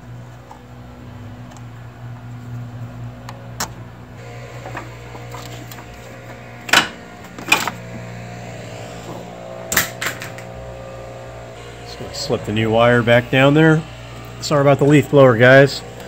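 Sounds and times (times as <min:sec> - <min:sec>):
distant leaf blowers: 0:00.0 - 0:16.0.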